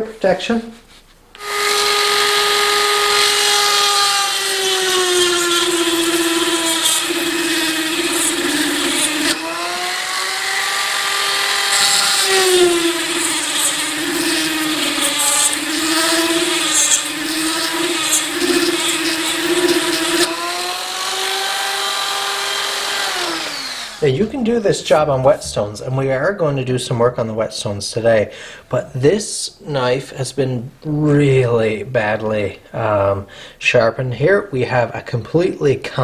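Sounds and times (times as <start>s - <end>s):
rotary tool grinding steel: 1.4s - 24.2s.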